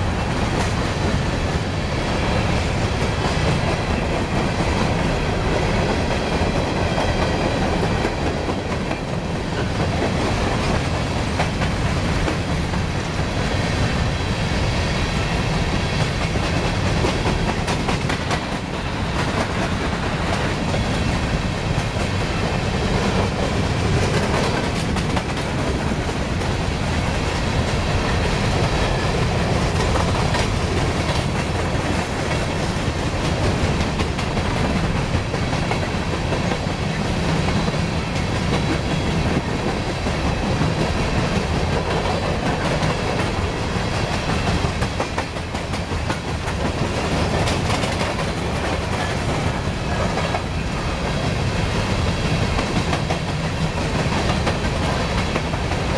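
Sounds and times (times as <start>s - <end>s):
steel wheels rumbling on rails: 0.0s - 55.9s
wheels clacking over rail joints: 15.2s - 26.6s, 27.2s - 55.9s.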